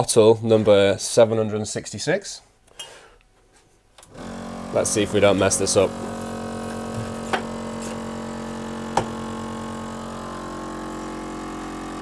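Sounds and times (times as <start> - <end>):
bottling machine humming: 4.0 - 12.0.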